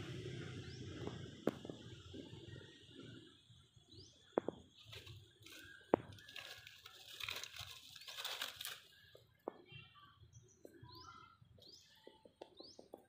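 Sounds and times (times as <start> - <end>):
dry leaves rustling: 4.8 - 9.1.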